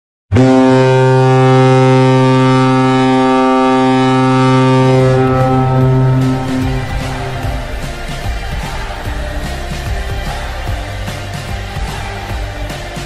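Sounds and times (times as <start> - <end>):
goal horn blast: 0.3 - 10.5.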